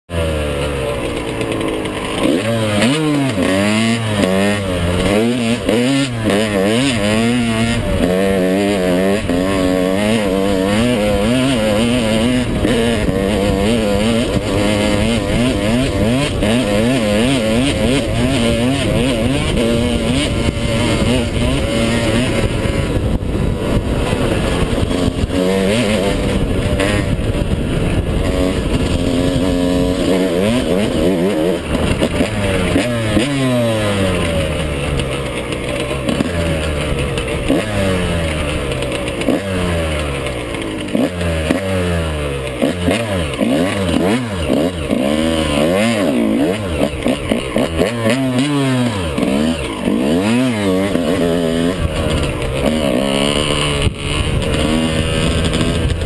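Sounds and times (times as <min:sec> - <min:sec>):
dirt bike engine revving: 0:00.1 - 0:56.0
wind noise on microphone: 0:04.0 - 0:35.2, 0:50.6 - 0:56.0.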